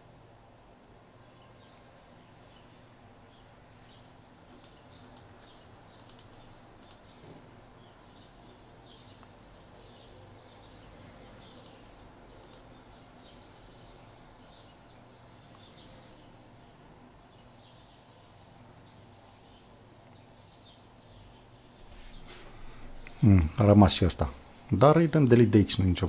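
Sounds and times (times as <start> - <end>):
faint steady hiss: 0.0 - 26.0
computer mouse clicking: 4.5 - 7.1, 11.5 - 12.7.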